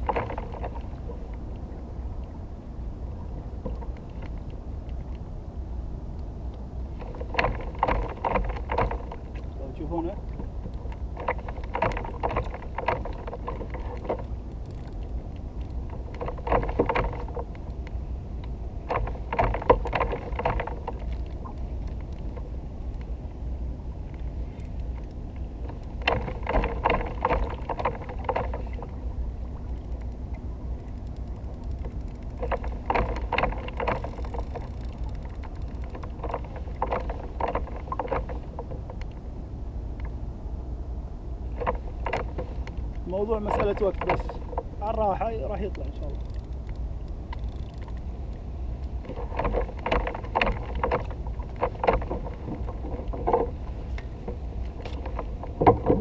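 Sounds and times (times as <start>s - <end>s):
steady low rumble: 0.0s - 56.0s
fishing reel whirring and ticking: 14.5s - 15.8s, 29.6s - 32.9s, 33.8s - 36.3s, 44.9s - 49.0s.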